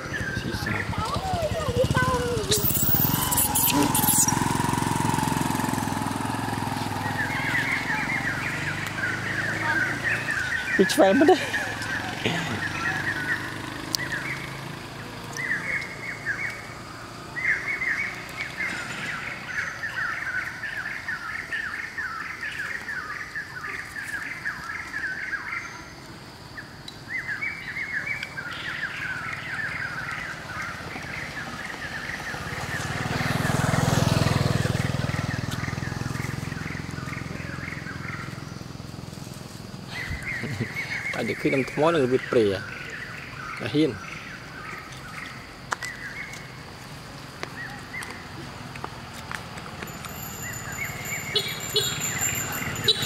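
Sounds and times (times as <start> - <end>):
vehicle passing: 0.0 - 21.0, 28.7 - 44.8, 48.2 - 53.0
birds chirping: 0.0 - 39.0, 39.7 - 48.8, 49.8 - 53.0.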